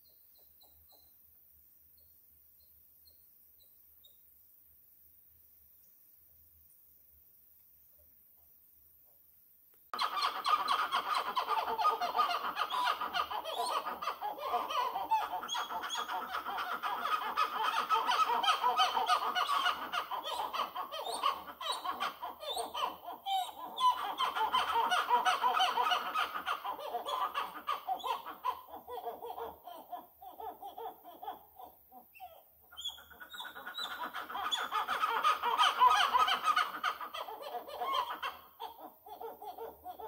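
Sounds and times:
howler monkey calling: 10.0s - 40.0s.

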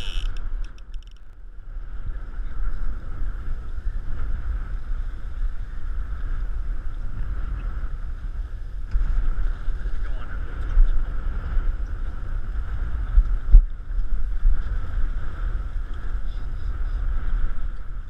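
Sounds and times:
wind rumbling on microphone: 0.0s - 18.0s.

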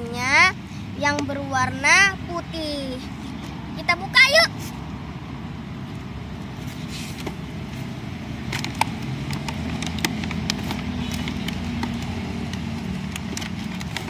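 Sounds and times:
road traffic rumble: 0.0s - 14.0s
plastic and cardboard crackling: 6.6s - 14.0s.

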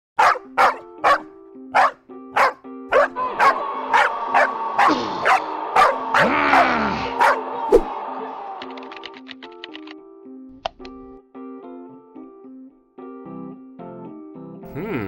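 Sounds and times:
dog barking: 0.2s - 7.5s
background music: 0.2s - 15.0s.

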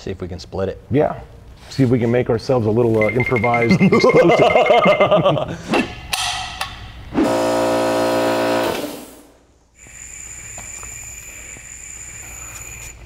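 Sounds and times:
air coupler buzzing tone: 7.1s - 13.0s
air hissing with high whine: 8.4s - 13.0s.

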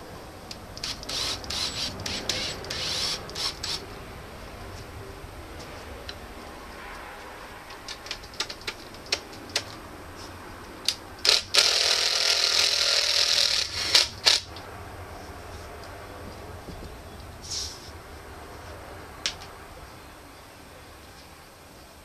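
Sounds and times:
loud grating metal scrape: 0.8s - 3.8s.

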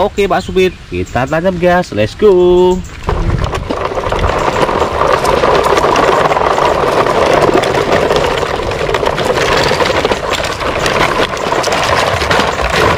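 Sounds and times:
plastic toy wheels rolling on concrete: 2.3s - 12.9s
toy cars rattling: 2.6s - 12.9s.

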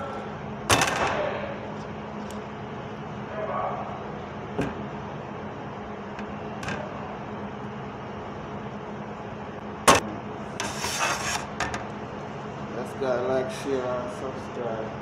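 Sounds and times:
exhaust hood hum: 0.0s - 15.0s
scraping rustle: 10.6s - 11.5s.

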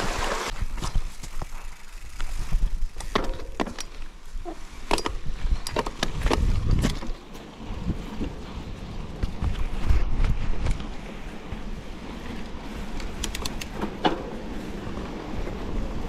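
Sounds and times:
bike clicks and knocks: 0.5s - 11.6s, 12.2s - 15.9s
wind on microphone: 5.2s - 13.5s.

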